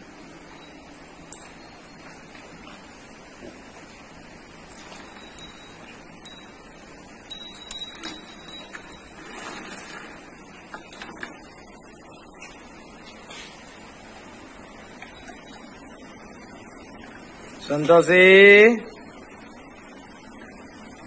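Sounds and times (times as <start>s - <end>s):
cow bells jingling: 0.4s - 2.8s, 4.7s - 10.2s, 14.9s - 16.1s.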